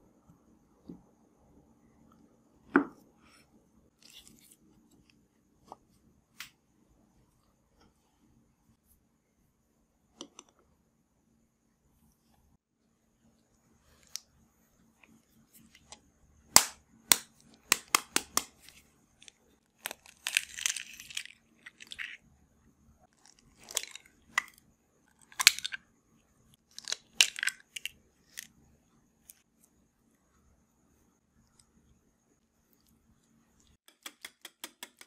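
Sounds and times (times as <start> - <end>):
eggshell crackling: 19.8 - 22.2.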